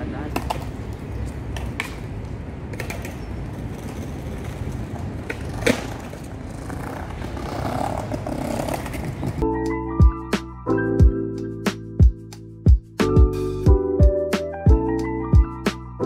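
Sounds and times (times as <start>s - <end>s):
low rumble of city traffic: 0.0s - 16.0s
skateboard wheels rolling on stone: 0.1s - 9.4s
skateboard clacks: 0.3s - 9.4s.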